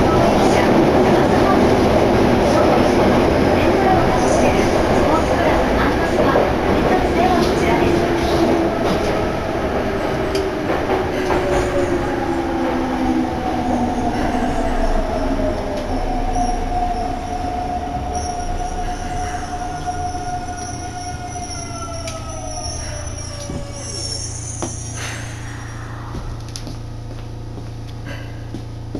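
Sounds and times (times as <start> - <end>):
train wheels rumbling: 0.0 - 28.9
train brake whine: 18.1 - 27.1.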